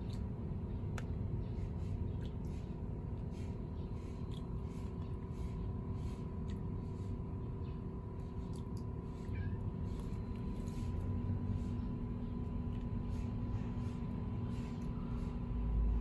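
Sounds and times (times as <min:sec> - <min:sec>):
faint hum: 0:00.0 - 0:16.0
low background rumble: 0:00.0 - 0:16.0.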